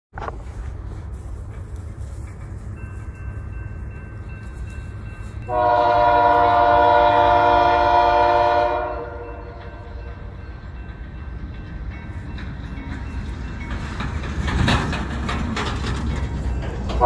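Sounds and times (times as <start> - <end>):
locomotive air horn: 5.5 - 10.0.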